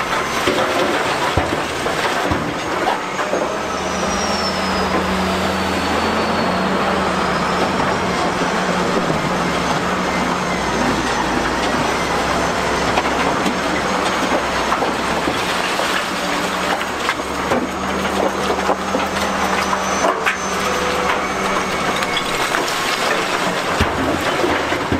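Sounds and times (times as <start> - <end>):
excavator engine running: 0.0 - 24.9
rocks rattling into truck body: 22.0 - 24.9.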